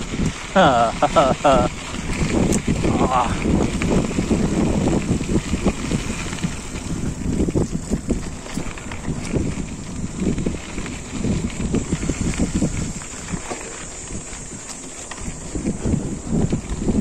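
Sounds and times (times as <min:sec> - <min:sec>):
mountain bike rattling over rocks: 0:00.0 - 0:17.0
wind rumbling on microphone: 0:00.0 - 0:17.0.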